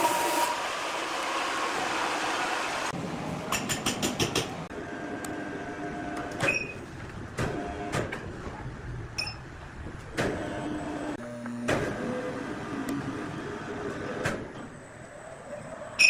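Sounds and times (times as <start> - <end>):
sawmill machinery hum: 0.0 - 3.0.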